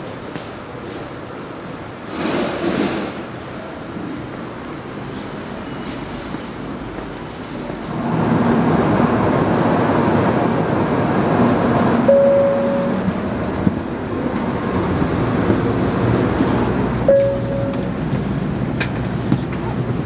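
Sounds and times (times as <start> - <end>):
train running noise: 0.0 - 20.0
short ringing tones: 12.1 - 13.1, 17.1 - 17.9.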